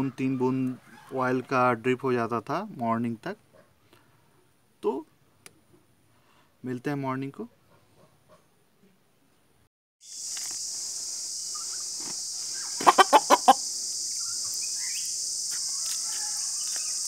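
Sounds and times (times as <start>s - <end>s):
steady high-pitched hiss: 10.0s - 17.0s
rooster clucking: 12.6s - 13.7s.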